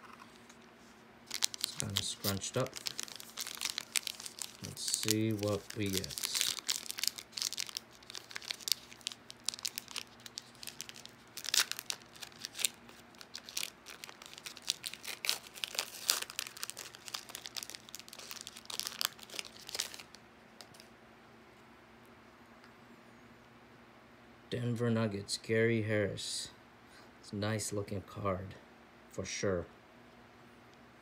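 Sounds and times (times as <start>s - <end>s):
foil wrapper crinkling: 1.2s - 20.9s.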